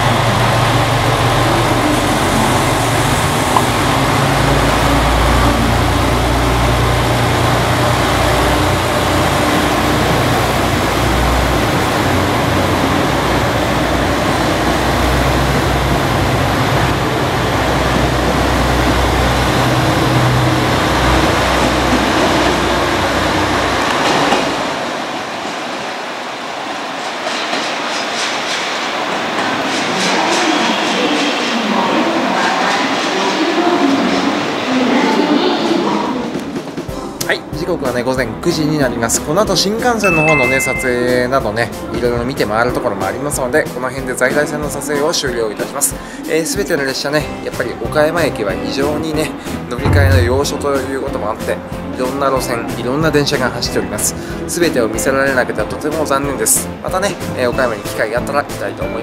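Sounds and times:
diesel train engine drone: 0.0 - 25.4, 49.8 - 51.8
rail and wheel noise: 0.0 - 57.8.

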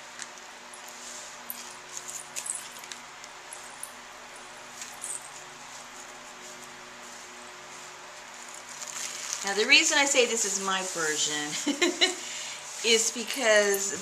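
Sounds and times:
faint steady hum: 0.0 - 14.0
dry leaves rustling: 4.7 - 11.5
small crackles: 8.4 - 9.7.

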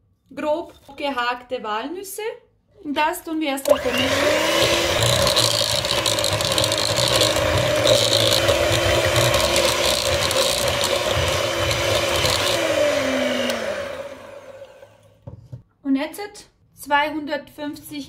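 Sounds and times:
beaters churning gritty batter: 3.7 - 14.9
electric hand mixer running: 3.7 - 15.2.

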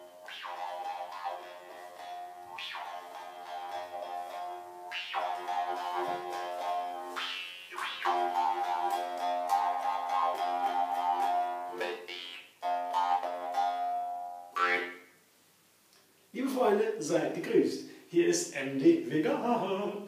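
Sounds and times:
jaw harp twanging: 0.2 - 15.1.

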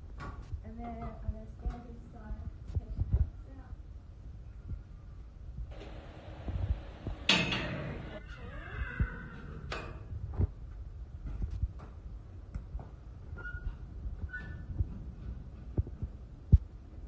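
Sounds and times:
loud animal cry: 8.2 - 9.6.

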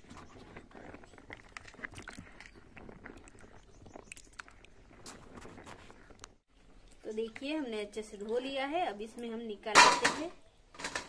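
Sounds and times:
tubers clicking and rubbing: 0.0 - 6.4
water splashing and sloshing: 1.3 - 8.6.

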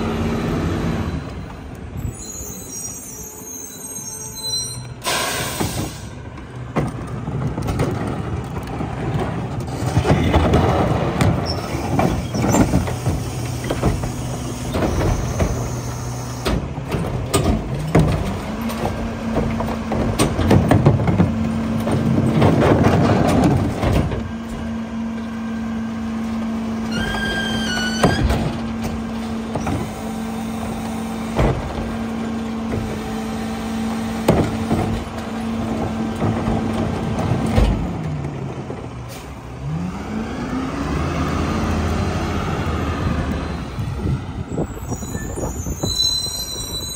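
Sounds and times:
short squeaks: 2.0 - 5.8, 26.9 - 28.4, 44.7 - 46.9
plastic carts banging and clattering: 6.7 - 15.7, 16.5 - 24.3, 34.2 - 37.9.

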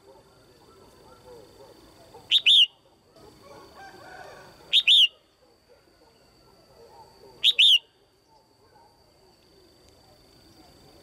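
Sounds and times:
bird whistled call: 2.3 - 2.8, 4.7 - 5.2, 7.4 - 8.0.

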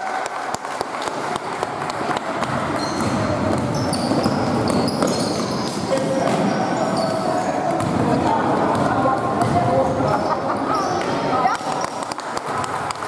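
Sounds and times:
murmur of voices: 0.0 - 13.0
basketball bouncing on court: 0.3 - 6.5, 7.8 - 9.9
sneakers squeaking: 0.9 - 13.0.

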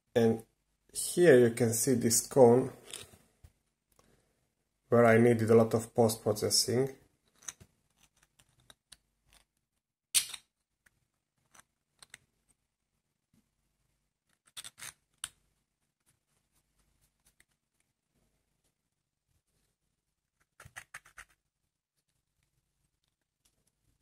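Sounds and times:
plastic parts clicking and scraping: 2.8 - 3.2, 7.2 - 9.6, 10.2 - 12.6, 14.2 - 15.4.

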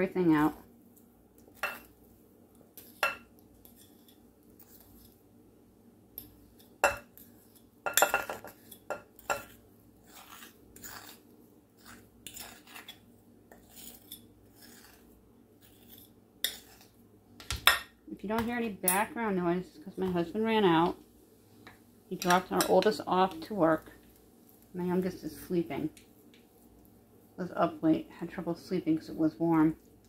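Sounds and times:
utensil scraping glass bowl: 8.4 - 11.2, 11.8 - 16.9.

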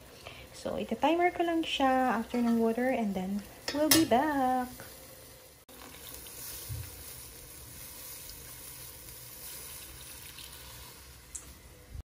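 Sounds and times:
water poured into a hot wok: 5.7 - 11.6.

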